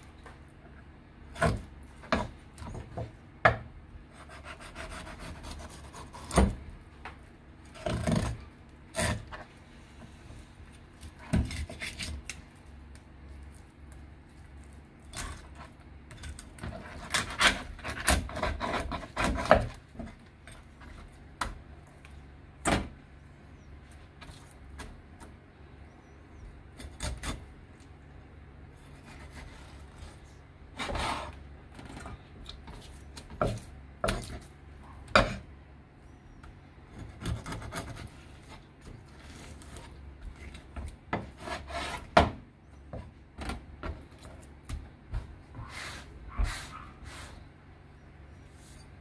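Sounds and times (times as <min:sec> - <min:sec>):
knife scraping fish: 0:11.2 - 0:12.4.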